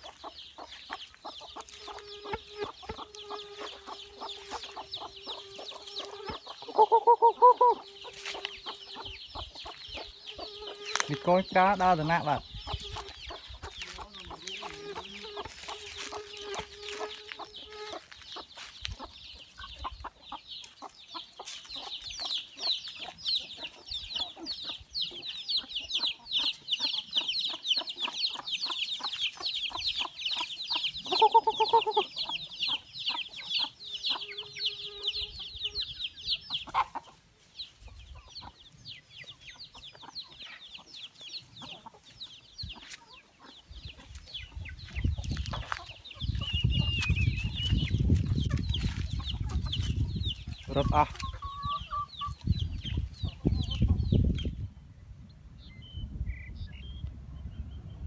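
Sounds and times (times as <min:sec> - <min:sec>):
chickens peeping: 0:00.0 - 0:58.0
louder lower chicken call: 0:06.2 - 0:08.2.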